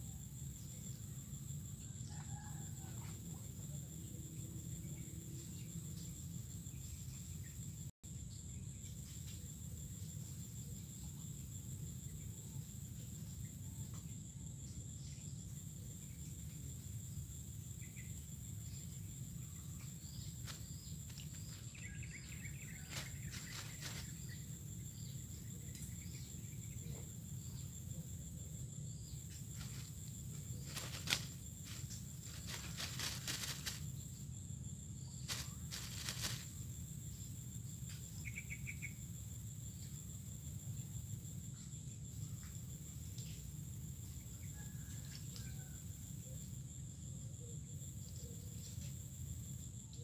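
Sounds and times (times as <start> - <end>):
insects droning: 0.0 - 50.0.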